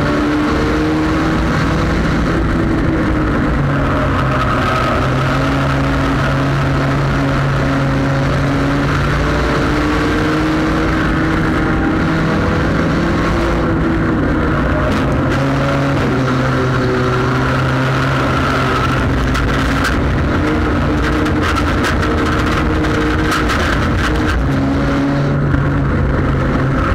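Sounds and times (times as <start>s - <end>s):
race car engine running hard: 0.0s - 26.9s.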